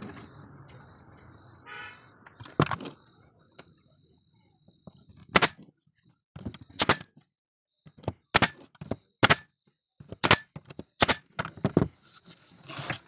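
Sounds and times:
nail gun firing: 5.3 - 5.6, 6.8 - 7.1, 8.3 - 8.6, 9.2 - 9.5, 10.1 - 11.4.

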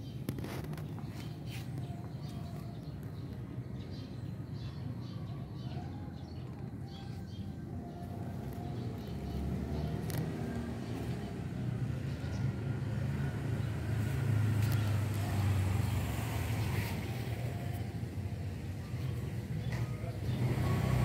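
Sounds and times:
vehicle engine passing by: 7.2 - 21.0.

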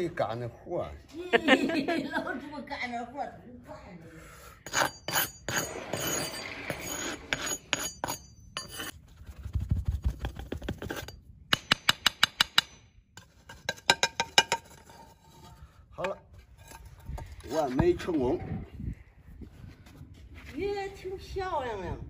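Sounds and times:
metal tool scraping pan: 4.6 - 9.0, 10.4 - 11.2, 13.2 - 18.2
sharp metallic taps: 11.5 - 12.9.

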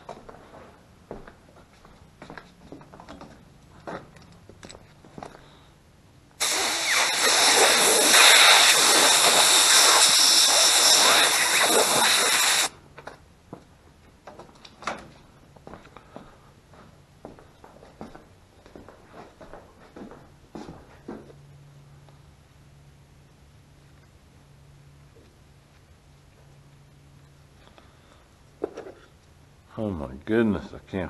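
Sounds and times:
compressed air blow gun hissing: 6.4 - 12.7.

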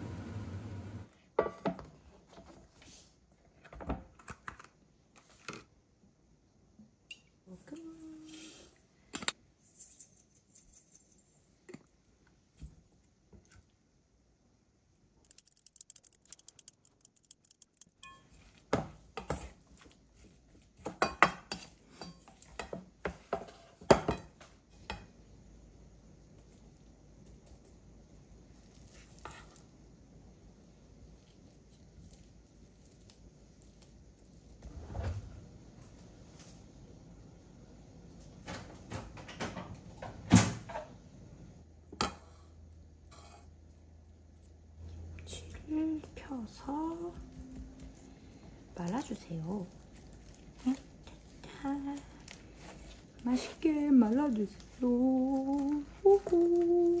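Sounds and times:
light rapid ticking: 15.2 - 18.1
sharp click: 15.3 - 18.0
dishes and utensils clinking: 17.7 - 18.4.

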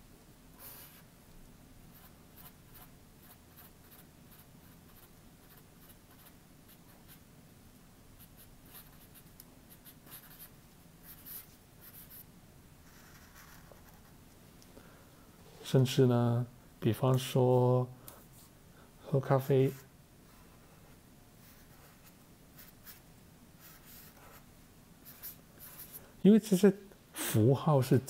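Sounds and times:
marker scratching on paper: 1.9 - 7.2, 8.2 - 12.2, 12.8 - 14.1, 21.4 - 23.0, 23.6 - 26.0.

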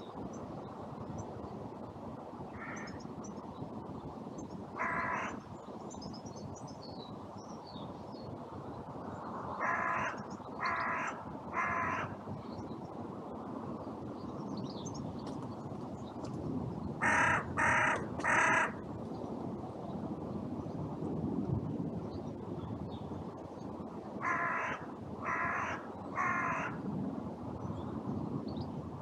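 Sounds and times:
wind noise: 0.0 - 29.0
crow cawing: 2.6 - 3.0, 4.8 - 5.4, 9.6 - 12.2, 17.0 - 18.8, 24.2 - 26.8
small birds chirping: 9.2 - 13.0.

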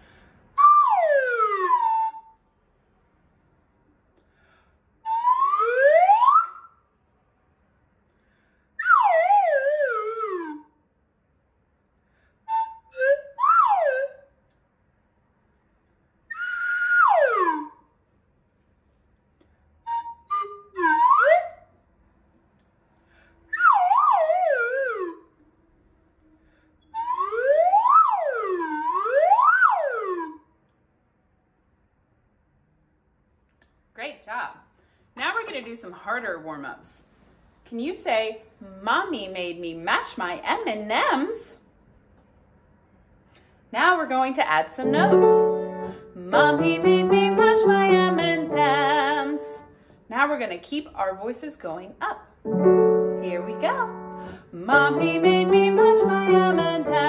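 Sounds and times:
slide whistle pitch glides: 0.6 - 2.4, 5.0 - 6.8, 8.8 - 10.7, 12.5 - 14.2, 16.3 - 17.8, 19.9 - 21.6, 23.5 - 25.3, 26.8 - 30.5.

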